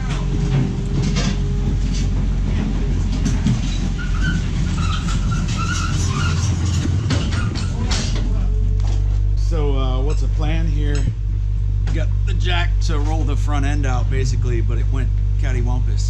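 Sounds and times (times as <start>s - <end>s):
floor jack clanks and squeaks: 0.0s - 9.2s
vehicle engine running: 0.0s - 16.0s.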